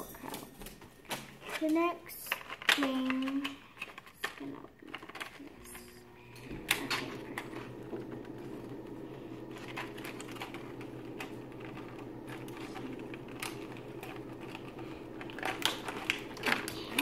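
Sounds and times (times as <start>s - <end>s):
steady low hum: 3.2s - 17.0s
plastic bag crinkling: 9.4s - 17.0s.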